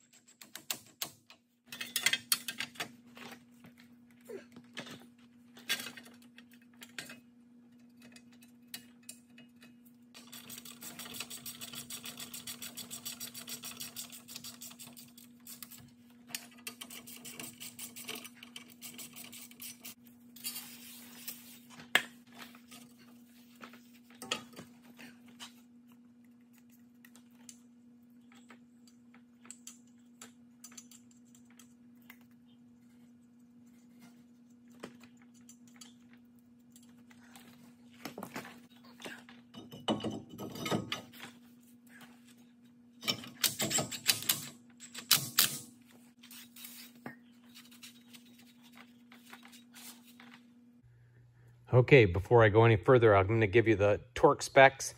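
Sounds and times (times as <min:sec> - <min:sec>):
metal tools clinking and knocking: 0:01.7 - 0:02.9, 0:39.5 - 0:41.2
steady low hum: 0:01.8 - 0:54.9.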